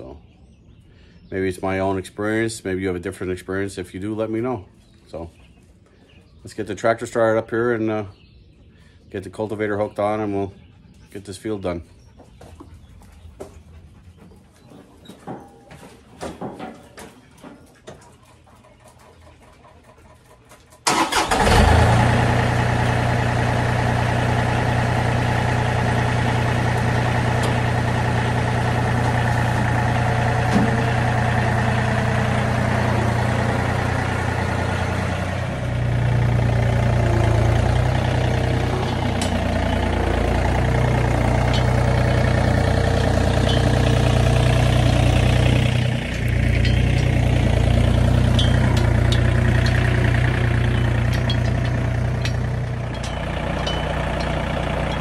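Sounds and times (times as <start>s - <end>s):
tractor diesel engine idling: 20.8s - 55.0s.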